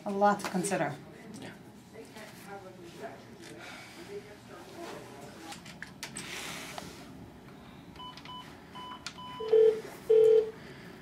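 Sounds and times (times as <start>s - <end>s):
telephone keypad beeps: 8.0s - 10.5s.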